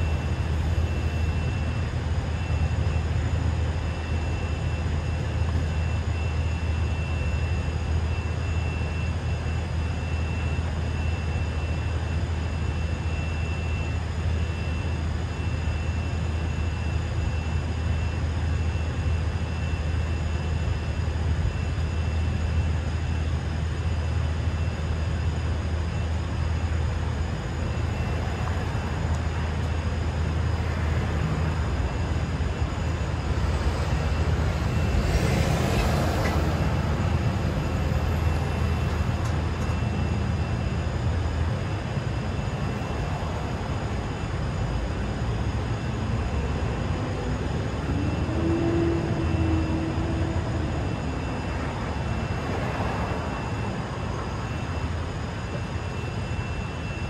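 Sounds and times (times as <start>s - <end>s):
steady vehicle hum: 0.0s - 57.0s
traffic rumble: 27.0s - 55.6s.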